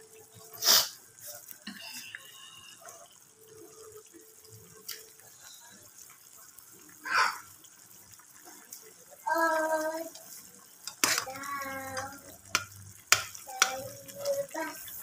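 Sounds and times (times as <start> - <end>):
soup bubbling in a pot: 0.0 - 15.0
burst of hissing: 0.6 - 1.0.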